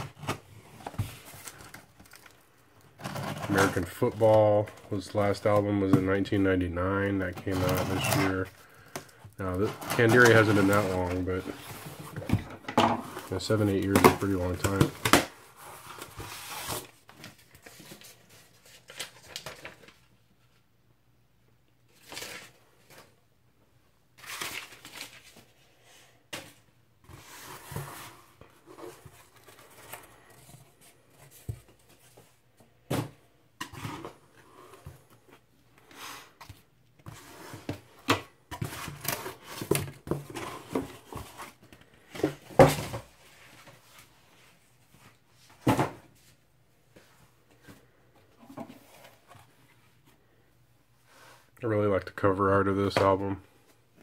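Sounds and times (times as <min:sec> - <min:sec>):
packing paper rustling: 0:00.0 - 0:06.0, 0:07.2 - 0:12.3, 0:13.1 - 0:20.2, 0:24.2 - 0:32.4.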